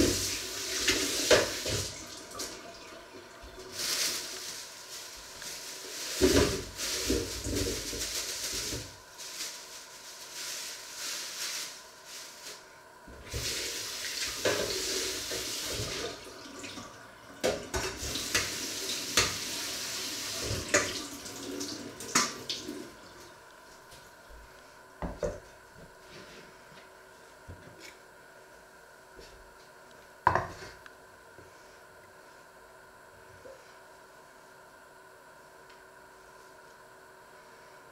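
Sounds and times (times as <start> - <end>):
tap water running into sink: 0.0 - 3.8, 13.3 - 22.9.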